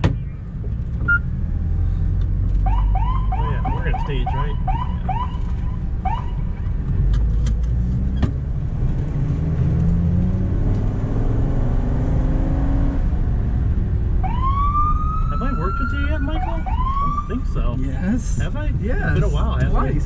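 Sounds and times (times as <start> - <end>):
ambulance engine accelerating: 0.9 - 20.0
siren wailing: 2.7 - 6.4, 14.2 - 17.6.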